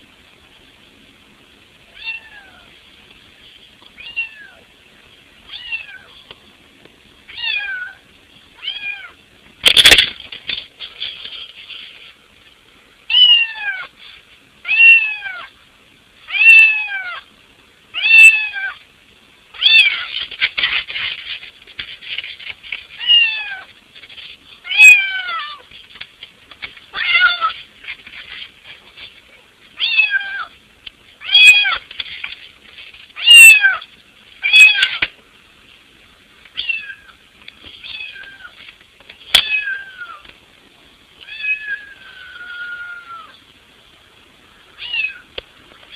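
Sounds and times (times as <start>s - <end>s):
cat meowing: 2.0s - 2.7s, 4.0s - 4.6s, 5.5s - 6.1s, 7.4s - 8.0s, 13.1s - 13.9s, 14.7s - 15.5s, 16.3s - 17.2s, 18.0s - 18.8s, 23.0s - 23.7s, 24.7s - 25.6s, 26.9s - 27.6s, 29.8s - 30.5s, 31.2s - 31.8s, 33.2s - 35.0s, 36.6s - 37.2s, 37.8s - 38.5s, 39.4s - 40.2s, 41.2s - 43.4s, 44.8s - 45.3s.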